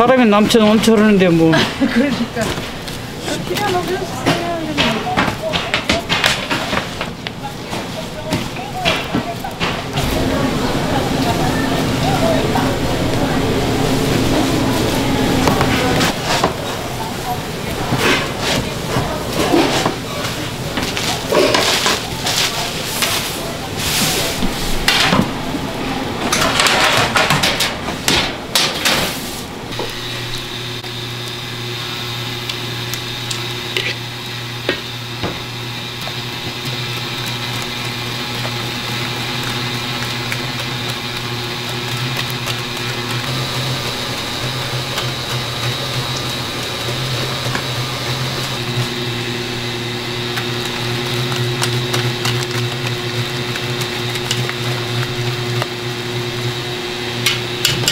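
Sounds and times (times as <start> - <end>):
electric mixer motor humming: 8.8 - 17.9, 29.7 - 57.9.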